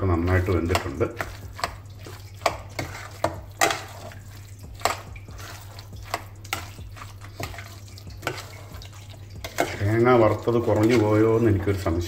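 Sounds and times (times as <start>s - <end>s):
spoon stirring thick curry: 0.0s - 12.0s
spoon clinking against metal pot: 0.3s - 11.8s.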